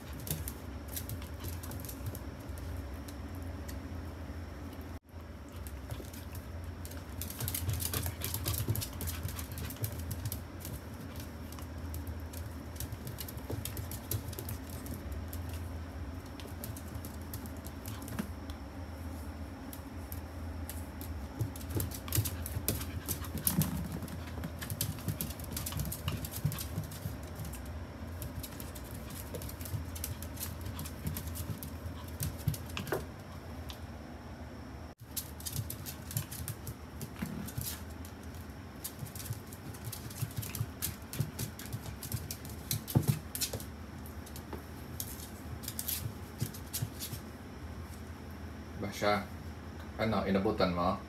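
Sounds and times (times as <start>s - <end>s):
steady low hum: 0.0s - 51.0s
dog claws clicking on wooden floor: 5.6s - 15.6s, 21.4s - 33.1s.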